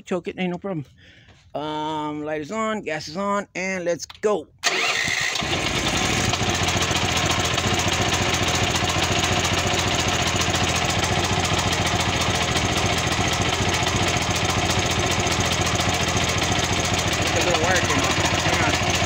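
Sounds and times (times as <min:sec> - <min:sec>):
generator engine running: 0:04.6 - 0:19.0.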